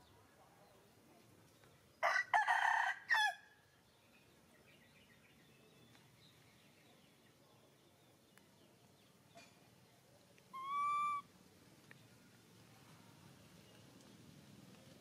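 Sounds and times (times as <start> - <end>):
rooster crowing: 2.0 - 3.4.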